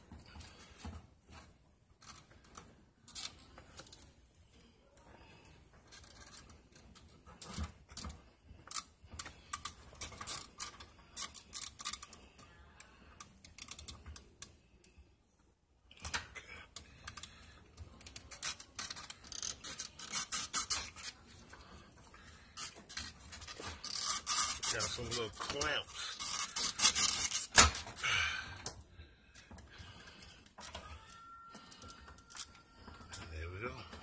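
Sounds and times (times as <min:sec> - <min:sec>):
plastic and metal parts rattling: 0:22.5 - 0:28.0.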